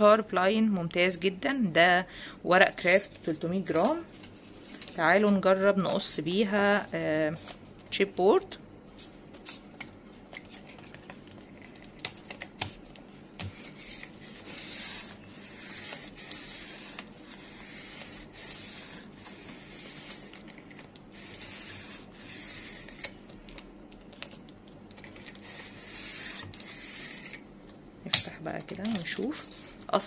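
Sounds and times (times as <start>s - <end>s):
paper trimmer blade rasping: 13.6s - 20.4s, 21.2s - 23.2s.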